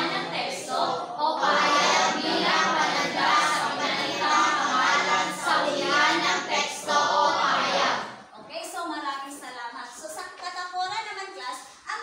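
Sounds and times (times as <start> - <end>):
voices reading aloud in unison: 0.0 - 9.4.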